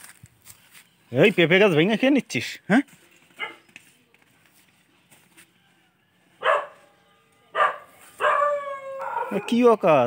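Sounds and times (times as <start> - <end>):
dog barking: 3.4 - 3.7, 6.4 - 6.9, 7.5 - 9.6.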